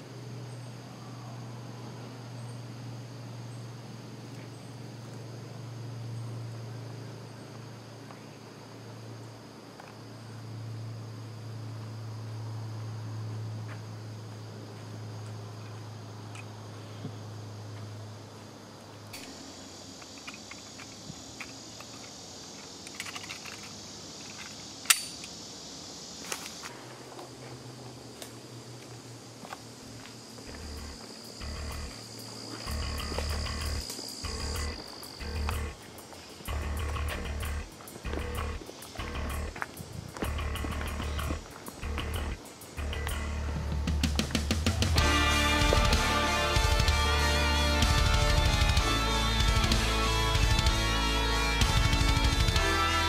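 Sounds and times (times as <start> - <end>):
insects trilling: 0.0 - 53.0
steady low hum: 23.6 - 53.0.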